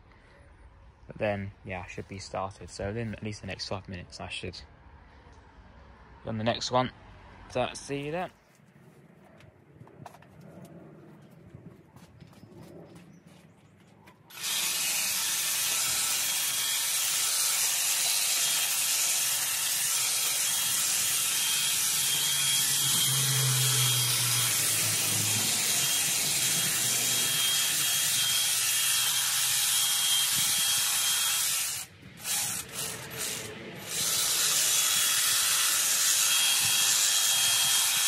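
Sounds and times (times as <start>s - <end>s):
hedge trimmer running: 14.3s - 38.0s.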